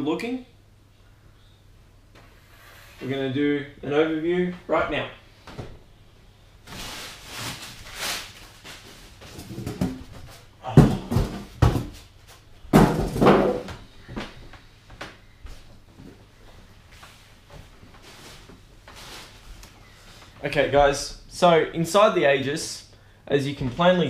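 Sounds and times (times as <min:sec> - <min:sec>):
knocks and thuds on wooden desk: 0:10.8 - 0:11.9, 0:12.7 - 0:13.8.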